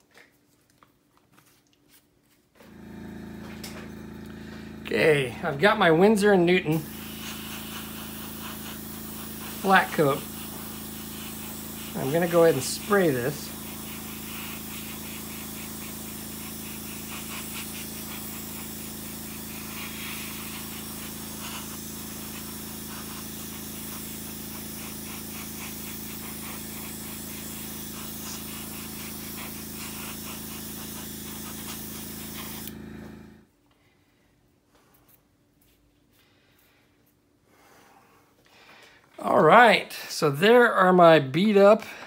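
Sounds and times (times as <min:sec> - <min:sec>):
motor hum: 0:02.6 - 0:33.5
spray hissing: 0:02.8 - 0:33.1.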